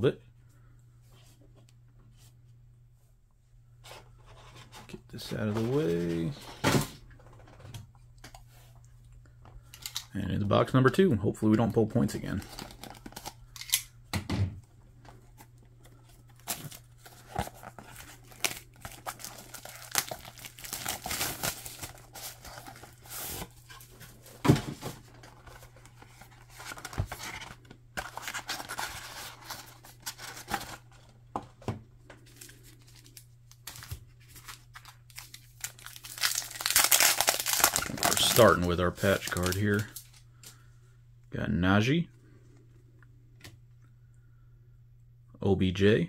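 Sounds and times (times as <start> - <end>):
foil packs crinkling: 12.1 - 13.6, 15.8 - 31.0, 32.2 - 40.6
plastic wrap tearing: 16.4 - 23.5, 33.2 - 40.1.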